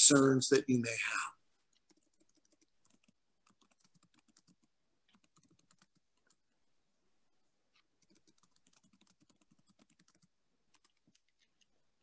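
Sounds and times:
faint keyboard typing: 1.6 - 6.7, 7.7 - 12.0.

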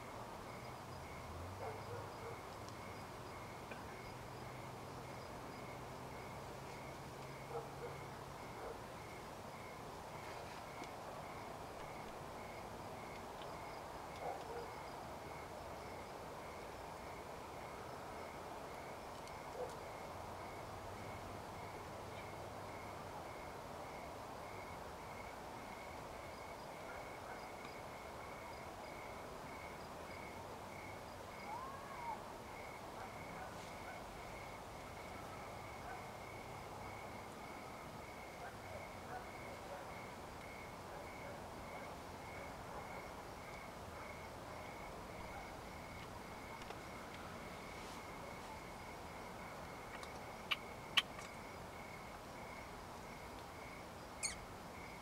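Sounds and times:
short calls: 54.2 - 54.4.

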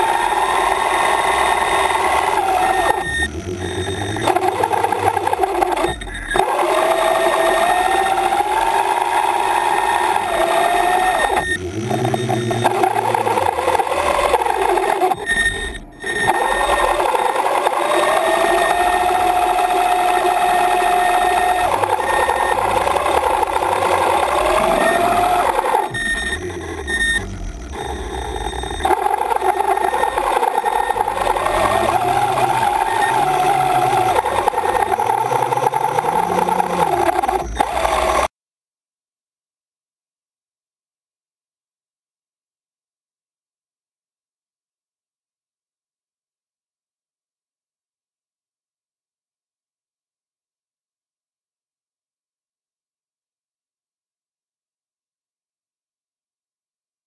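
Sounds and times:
electric thrusters whining: 0.0 - 38.3.

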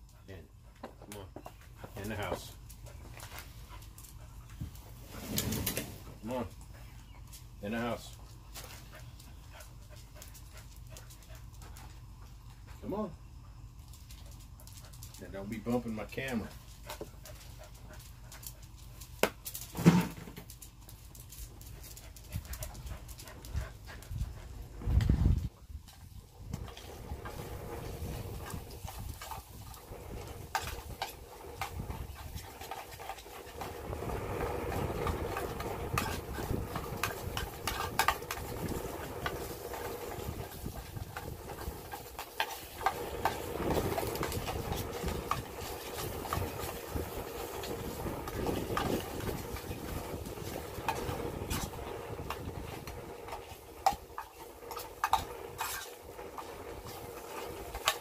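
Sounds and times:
low uneven rumble: 20.6 - 58.0.

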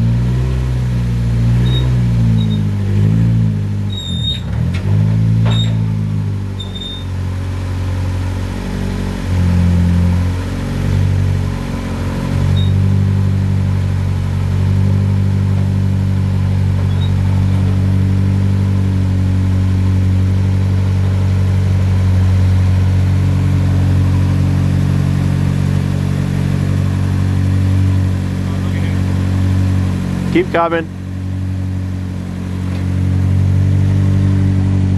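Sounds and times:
car engine idling: 0.0 - 34.9.

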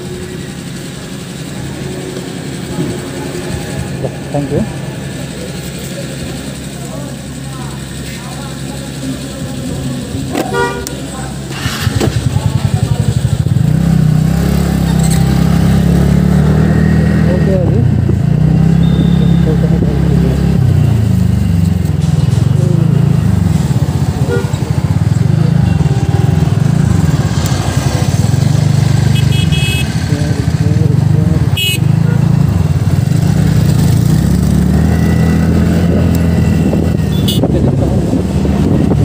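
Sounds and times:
scooter engine running: 0.0 - 39.0
short horn toot: 18.8 - 19.6, 29.1 - 30.0, 31.5 - 32.0, 37.1 - 37.5.

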